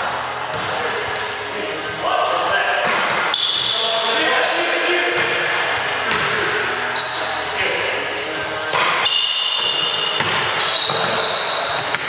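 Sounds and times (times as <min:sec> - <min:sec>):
players' voices: 0:00.0 - 0:12.0
sneakers squeaking: 0:00.4 - 0:12.0
basketball bouncing on wood floor: 0:06.1 - 0:06.4, 0:10.2 - 0:11.2.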